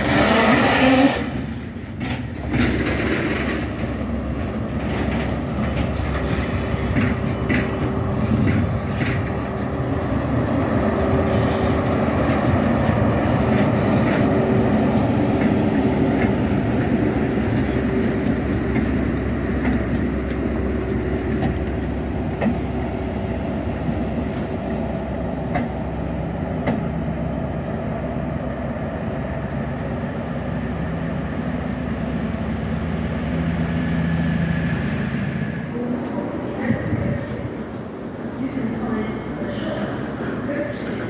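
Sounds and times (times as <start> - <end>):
wheels clicking on track: 0.0 - 9.8, 10.8 - 22.8
diesel train engines droning: 0.0 - 41.0.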